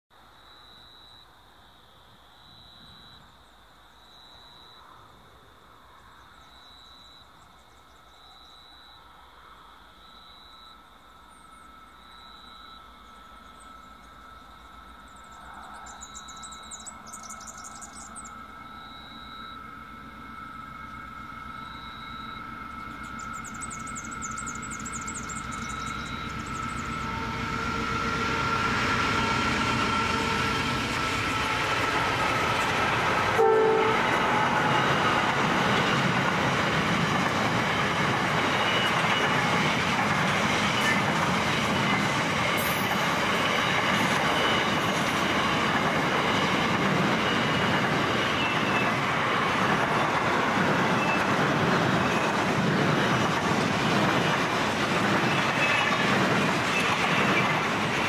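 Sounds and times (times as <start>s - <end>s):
diesel locomotives: 0.2s - 58.0s
train wagons rumbling: 13.3s - 58.0s.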